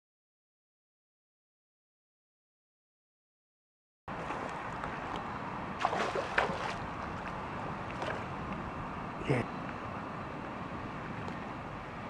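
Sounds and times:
fish splashing on water surface: 0:05.8 - 0:07.1.

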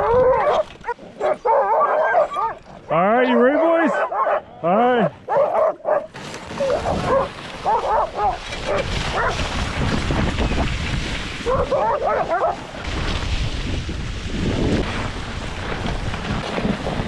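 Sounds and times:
wind rumble on microphone: 0:00.0 - 0:00.9, 0:06.5 - 0:17.0
dogs barking: 0:00.0 - 0:04.5, 0:05.2 - 0:09.4, 0:11.4 - 0:12.6.

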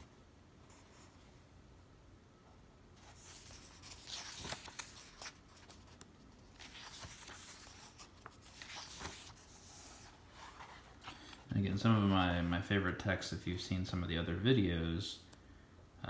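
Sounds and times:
book pages flipping: 0:03.0 - 0:12.2.

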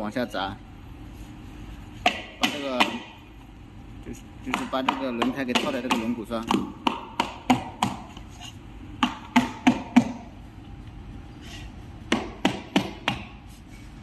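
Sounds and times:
rubber mallet striking tyre: 0:12.1 - 0:13.4.

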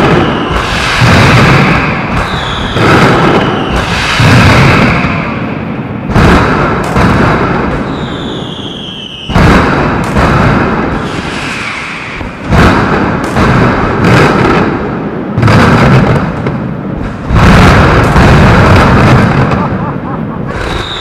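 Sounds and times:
firecracker barrage: 0:00.0 - 0:21.0
falling whistle: 0:20.5 - 0:21.0.

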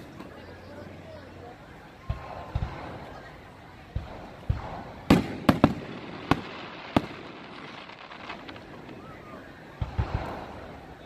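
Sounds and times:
fireworks bursting with bangs: 0:02.0 - 0:11.0
deep firework thumps: 0:03.9 - 0:07.4.

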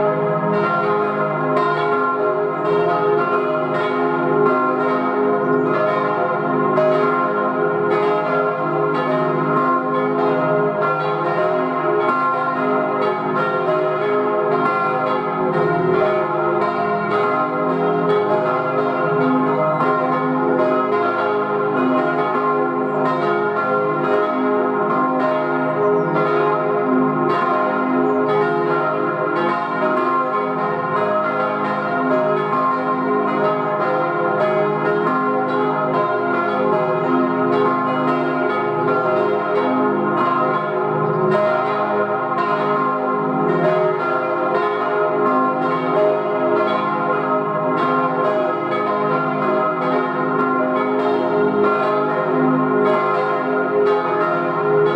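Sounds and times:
church bells pealing: 0:00.0 - 0:54.9.

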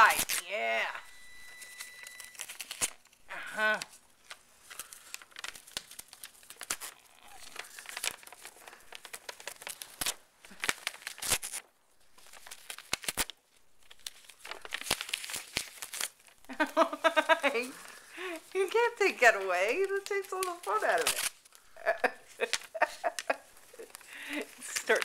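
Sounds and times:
paper crinkling and tearing: 0:00.0 - 0:25.0.

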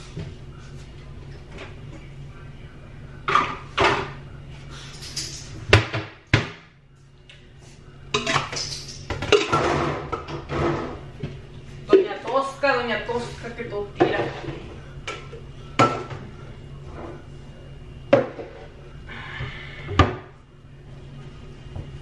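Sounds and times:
dishes clattering: 0:08.2 - 0:11.1, 0:14.0 - 0:16.2.

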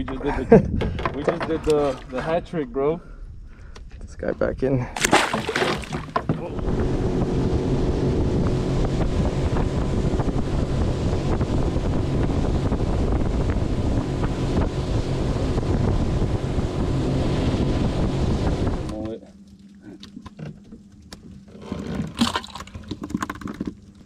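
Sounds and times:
wind buffeting microphone: 0:00.0 - 0:04.6, 0:06.4 - 0:18.9
outboard motor running: 0:05.0 - 0:24.0.

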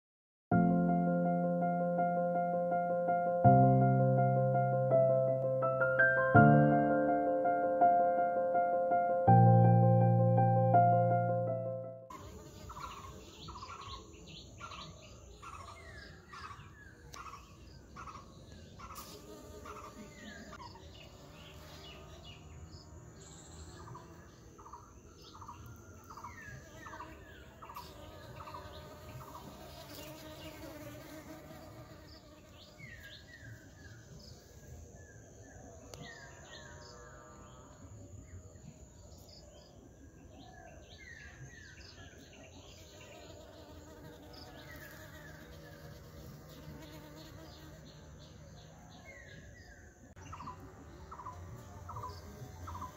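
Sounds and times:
honeybees buzzing: 0:18.8 - 0:24.2, 0:26.7 - 0:33.5, 0:42.9 - 0:48.4.

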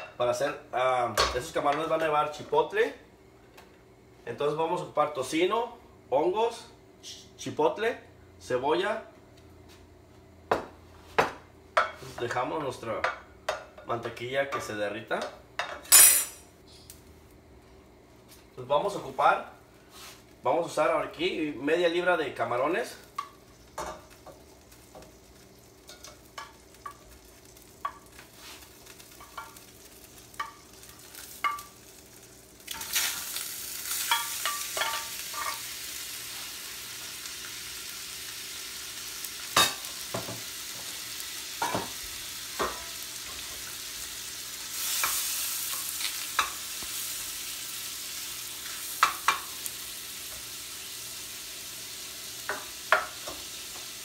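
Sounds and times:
spatula knocking against pans: 0:13.0 - 0:13.9
shrimp sizzling in pans: 0:22.8 - 0:54.0.

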